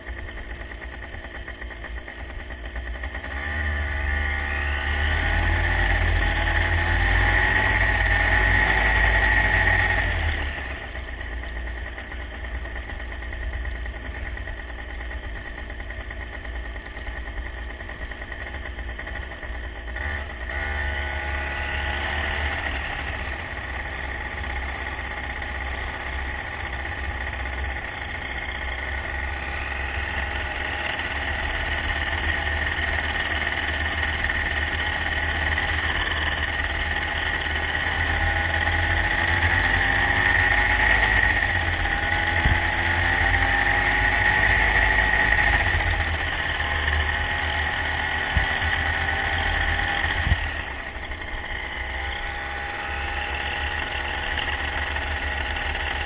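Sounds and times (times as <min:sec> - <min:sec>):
vehicle engine running: 0:00.0 - 0:56.0.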